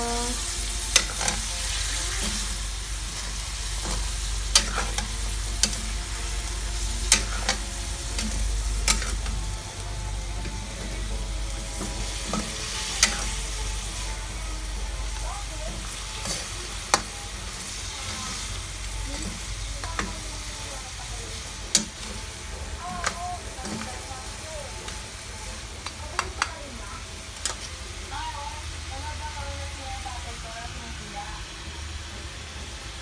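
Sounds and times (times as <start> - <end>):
food sizzling in a wok: 0.0 - 33.0.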